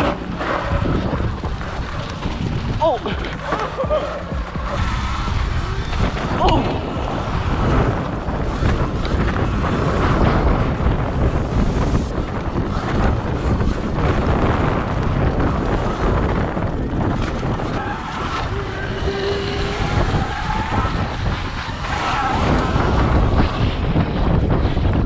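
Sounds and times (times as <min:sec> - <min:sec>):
rising whine: 0:00.0 - 0:12.1
tyres on gravel track: 0:00.0 - 0:13.8
wind buffeting microphone: 0:00.0 - 0:25.0.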